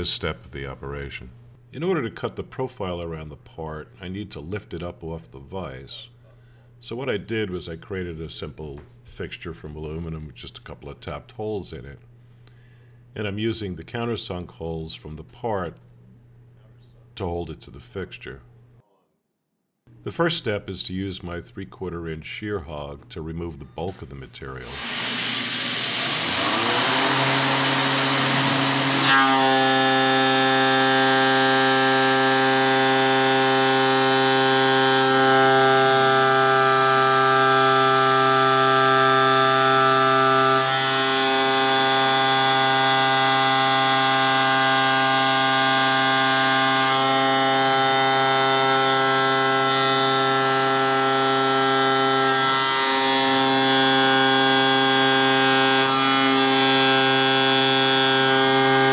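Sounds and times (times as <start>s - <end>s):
milling cutter whine: 24.6s - 58.9s
mist coolant hiss: 24.7s - 29.0s.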